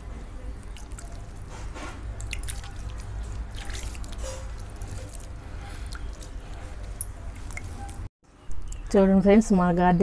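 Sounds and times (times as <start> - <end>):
water drips on soil: 2.2 - 6.6.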